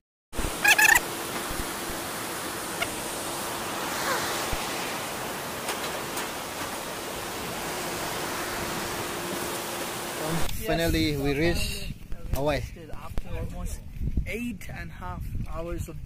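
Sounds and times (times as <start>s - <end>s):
river water rushing: 0.4s - 10.5s.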